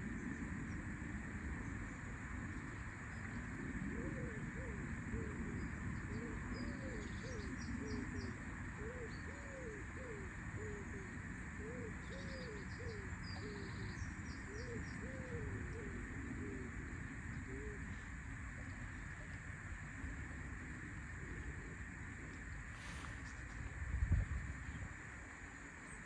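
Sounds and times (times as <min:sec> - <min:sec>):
steady outdoor hiss: 0:00.0 - 0:26.0
pigeon cooing: 0:03.9 - 0:08.2, 0:14.5 - 0:18.0
songbird chirping faintly: 0:04.2 - 0:26.0.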